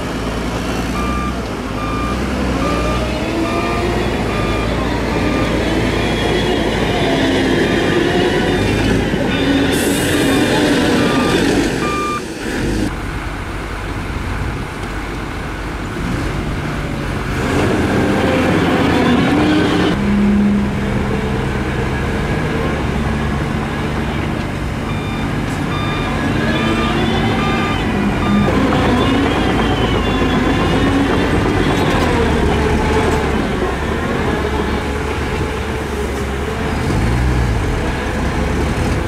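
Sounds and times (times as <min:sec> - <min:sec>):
truck diesel engine revving: 0:00.0 - 0:14.1, 0:15.4 - 0:39.0
bulldozer engine running: 0:00.0 - 0:39.0
backup alarm beeping: 0:01.0 - 0:06.2, 0:10.2 - 0:12.3, 0:24.9 - 0:30.7.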